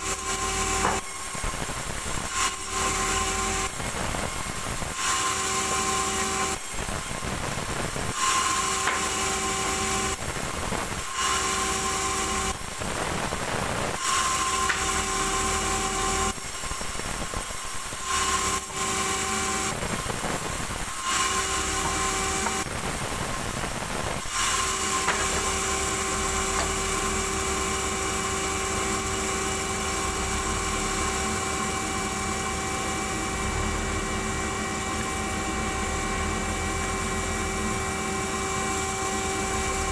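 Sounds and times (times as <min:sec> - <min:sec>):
band saw whining: 0:00.0 - 0:39.9
saw blade rasping through log: 0:14.0 - 0:16.3, 0:21.0 - 0:22.7, 0:24.3 - 0:27.4.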